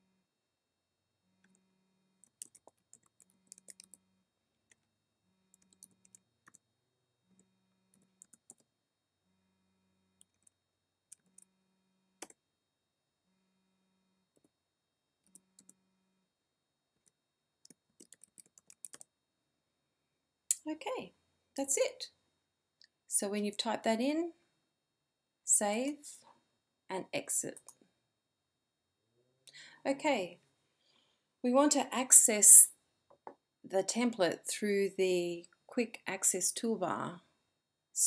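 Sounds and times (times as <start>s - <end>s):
computer keyboard typing: 2.2s - 4.0s, 5.5s - 6.6s, 7.9s - 8.7s, 10.2s - 10.5s, 17.6s - 19.1s.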